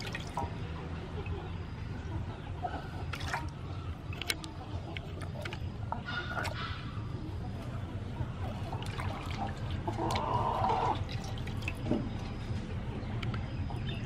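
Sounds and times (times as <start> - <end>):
water splashing in metal basin: 0.0 - 0.6, 3.0 - 6.6, 8.4 - 12.3
water swish: 8.4 - 12.2.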